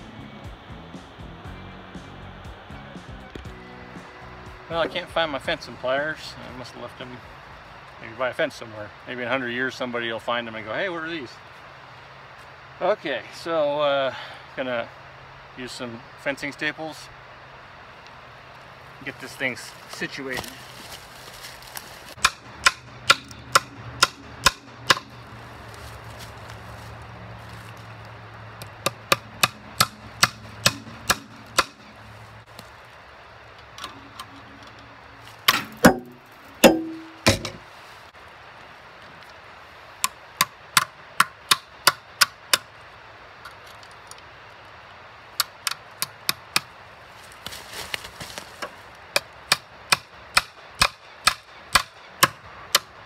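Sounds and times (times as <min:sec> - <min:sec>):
hammer tapping metal staples: 0:22.2 - 0:25.2, 0:28.8 - 0:31.9, 0:35.5 - 0:37.6, 0:49.5 - 0:52.9
heavier hammer blows ringing: 0:22.2 - 0:25.3, 0:28.8 - 0:32.0, 0:35.5 - 0:37.6.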